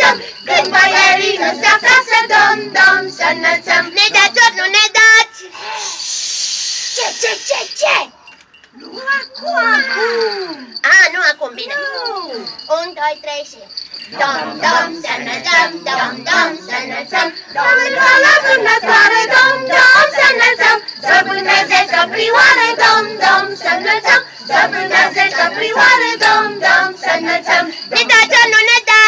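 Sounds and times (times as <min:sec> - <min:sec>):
group singing carols: 0:00.0 - 0:05.0, 0:14.0 - 0:28.8.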